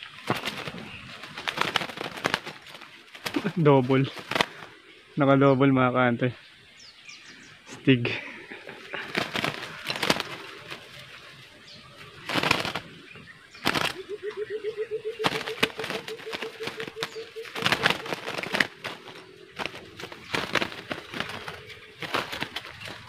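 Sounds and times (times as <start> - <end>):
wings beating against wire: 0.0 - 4.8, 8.2 - 14.2, 15.1 - 23.0
low repeated dove call: 8.1 - 23.0.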